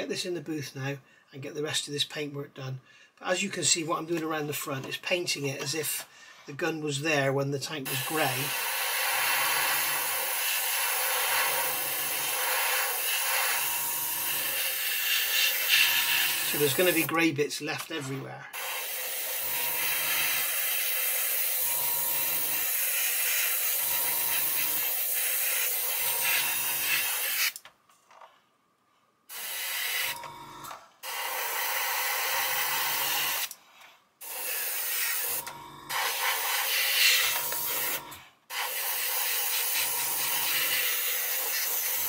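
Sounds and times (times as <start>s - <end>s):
airbrush spraying hiss: 14.7s - 17.1s, 35.9s - 42.0s.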